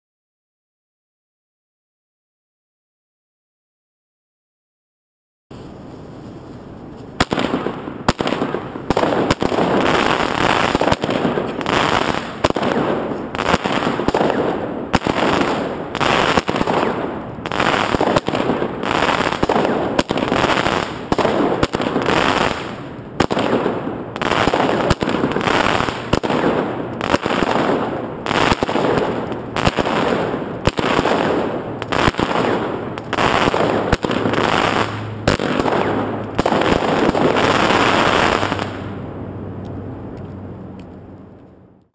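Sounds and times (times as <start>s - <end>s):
firework bursts crackling: 5.5s - 39.0s.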